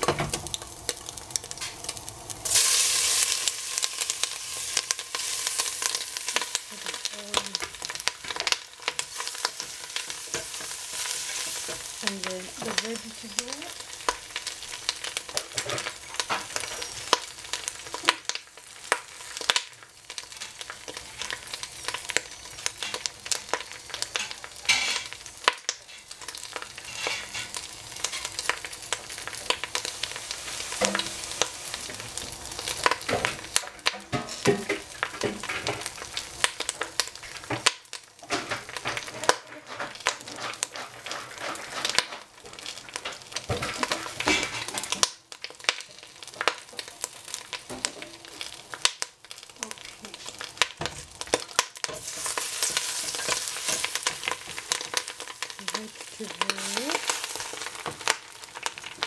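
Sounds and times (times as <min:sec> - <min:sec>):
food sizzling in oil: 0:00.0 - 0:59.0
utensil scraping and knocking pan: 0:38.2 - 0:45.0.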